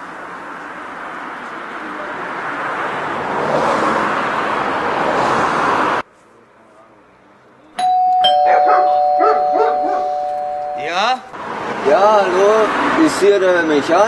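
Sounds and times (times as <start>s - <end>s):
street traffic noise: 0.0s - 14.0s
car passing by: 0.2s - 6.0s, 11.4s - 14.0s
bell button click: 7.8s - 11.3s
two-tone doorbell ringing: 7.8s - 11.3s.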